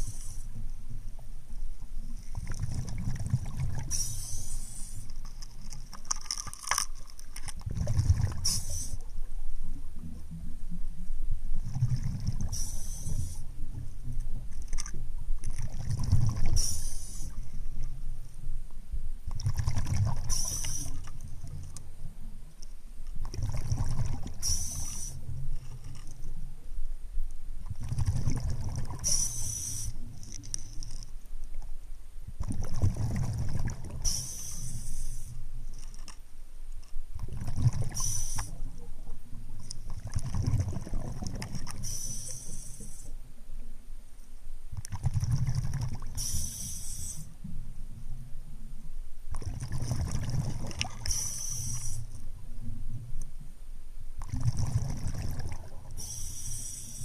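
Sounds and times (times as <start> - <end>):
regulator inhale hiss: 0.0 - 0.7, 3.8 - 5.2, 8.4 - 9.1, 12.4 - 13.7, 16.5 - 17.6, 20.3 - 21.2, 24.4 - 25.3, 29.0 - 30.1, 34.0 - 35.6, 37.9 - 38.7, 41.7 - 43.2, 46.1 - 47.5, 51.0 - 52.3, 55.9 - 57.0
bubbles rumbling underwater: 2.3 - 3.9, 7.7 - 8.7, 11.6 - 12.7, 15.5 - 16.6, 19.4 - 20.4, 23.2 - 24.4, 27.6 - 29.0, 32.4 - 34.0, 37.2 - 38.1, 39.4 - 41.8, 44.8 - 46.2, 49.3 - 51.1, 54.2 - 55.9.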